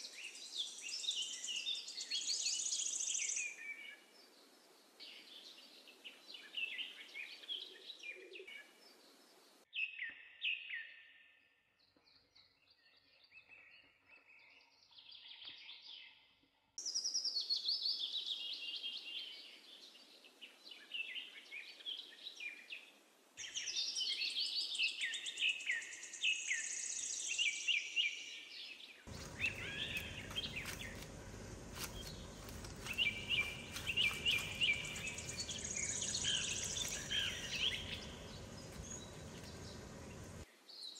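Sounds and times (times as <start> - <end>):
birds chirping and trilling: 23.4 - 40.9
steady background noise: 29.1 - 40.4.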